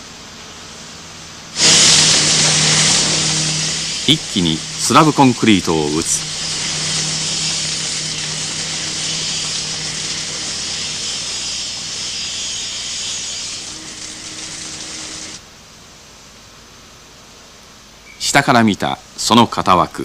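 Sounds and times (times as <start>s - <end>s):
steady hissing machine noise: 0.0s - 20.0s
low hum: 1.6s - 12.8s.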